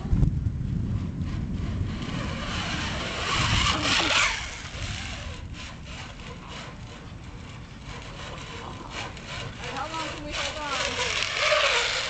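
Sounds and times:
rope toy rasping on line: 1.0s - 12.0s.

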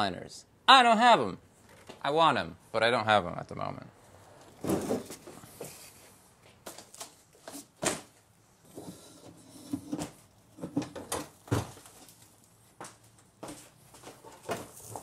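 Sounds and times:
cardboard laid on concrete: 4.2s - 8.9s, 9.9s - 15.0s
footsteps: 11.5s - 15.0s.

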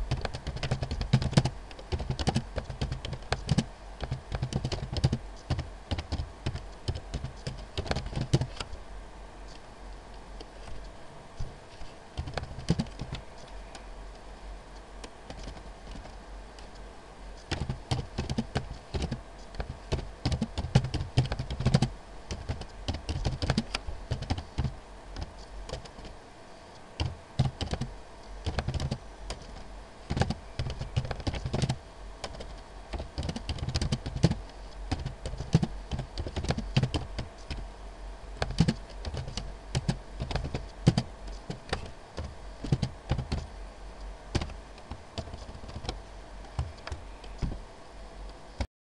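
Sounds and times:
typing on computer keyboard: 0.1s - 8.7s, 12.2s - 13.2s, 15.3s - 16.1s, 17.5s - 26.2s, 27.0s - 37.6s, 38.4s - 43.5s, 44.3s - 47.6s.

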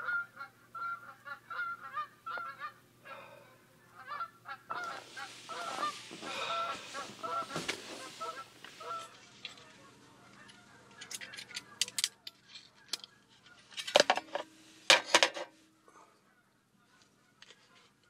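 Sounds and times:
geese honking: 0.0s - 12.0s
sleeping bag rustling: 4.8s - 9.1s.

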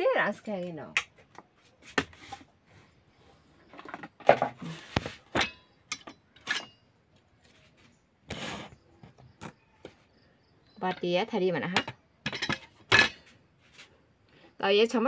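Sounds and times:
metal bowls and utensils clicking: 5.4s - 6.8s, 11.7s - 13.2s.

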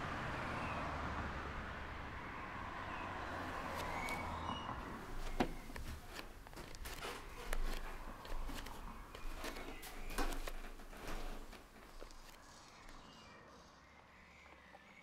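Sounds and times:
barefoot footsteps on wooden floor: 3.5s - 12.4s.

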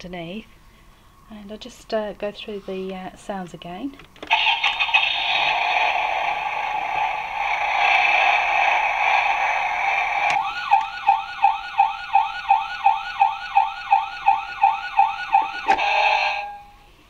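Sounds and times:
steady electronic sound: 4.3s - 16.6s
toy siren wailing: 10.3s - 16.7s.

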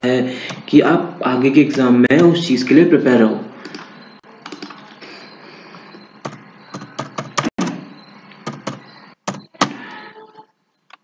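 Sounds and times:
keyboard typing clicks: 3.6s - 5.0s, 5.9s - 9.8s.

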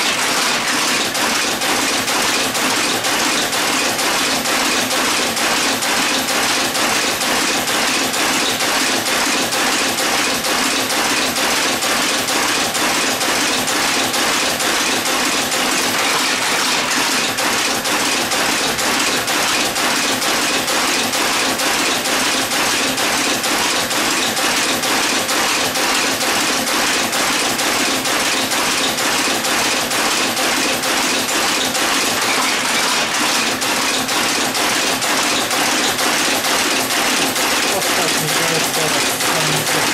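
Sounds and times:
type casting machine clattering: 0.0s - 39.9s.

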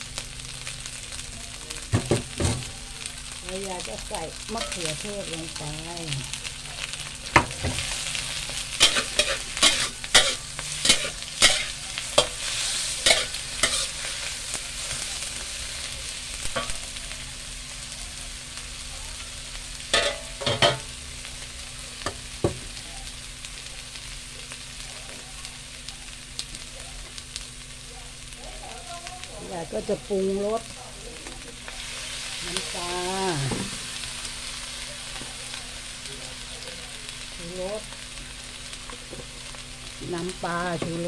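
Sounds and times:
food sizzling: 0.0s - 41.0s
metal spatula scraping wok: 7.7s - 15.1s.

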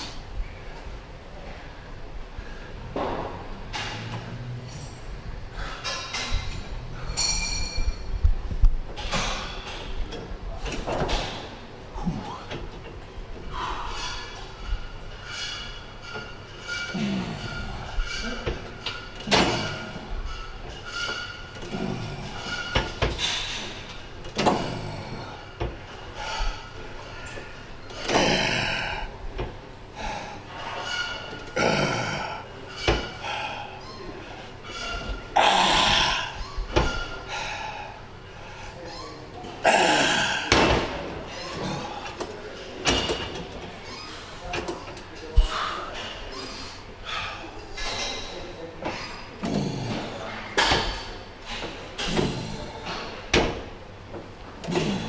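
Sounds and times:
gym machine plates clanking: 3.0s - 8.3s, 8.9s - 37.8s, 38.8s - 46.4s, 47.6s - 55.0s
weight stack metal clanks: 5.7s - 8.2s, 13.8s - 29.5s
heavy breathing: 31.6s - 34.6s, 37.2s - 38.8s, 45.4s - 47.6s.

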